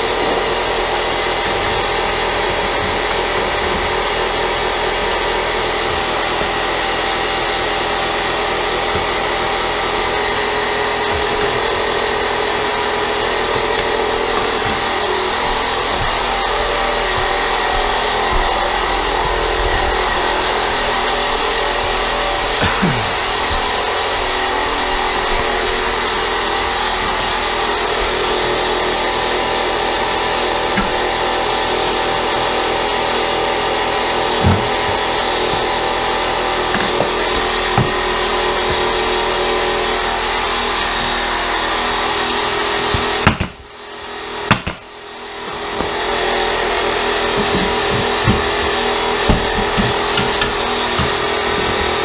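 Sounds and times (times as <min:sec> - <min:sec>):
air compressor running: 0:00.0 - 0:52.0
pneumatic nail gun firing: 0:42.8 - 0:43.8, 0:44.4 - 0:45.0.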